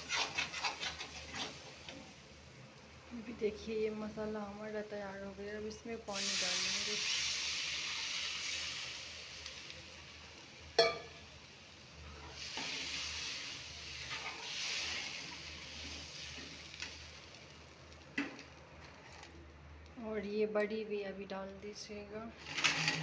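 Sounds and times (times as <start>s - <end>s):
water hissing in hot pan: 0.0s - 2.7s, 3.6s - 18.0s
gravy sizzling: 0.0s - 19.8s
spoon clinking against pan: 10.8s - 11.2s.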